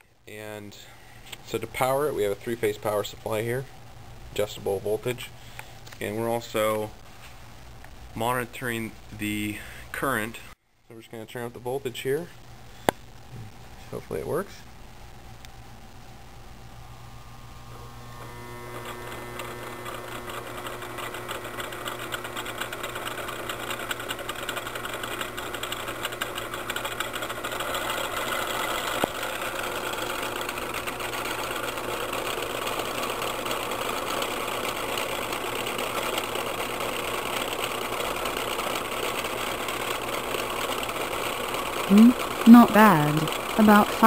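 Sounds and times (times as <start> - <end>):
motor rattling and whirring: 17.8 - 42.5.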